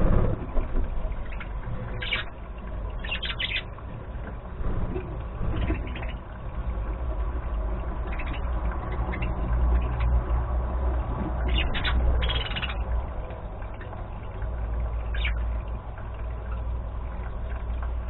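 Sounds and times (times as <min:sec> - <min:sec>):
steady low rumble: 0:00.0 - 0:18.0
budgerigars chirping: 0:02.0 - 0:02.3, 0:03.0 - 0:03.7, 0:08.1 - 0:10.1, 0:11.4 - 0:12.8, 0:15.1 - 0:15.4.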